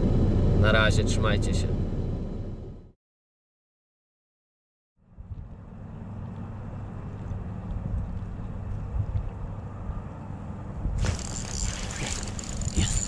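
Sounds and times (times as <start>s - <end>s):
wind buffeting microphone: 7.2s - 13.0s.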